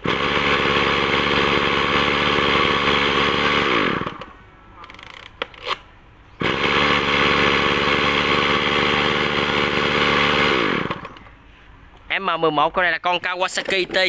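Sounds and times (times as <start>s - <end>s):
brush cutter engine running: 0.0s - 4.3s, 6.4s - 11.3s.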